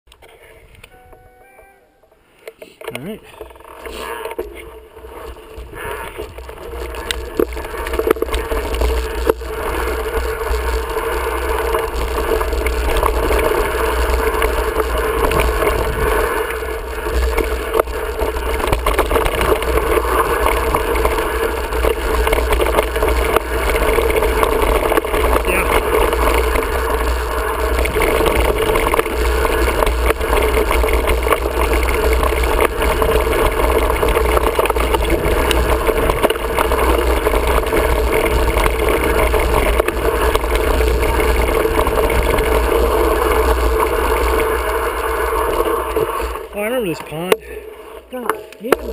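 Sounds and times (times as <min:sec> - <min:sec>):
bike knocking over rough ground: 0:02.9 - 0:47.5.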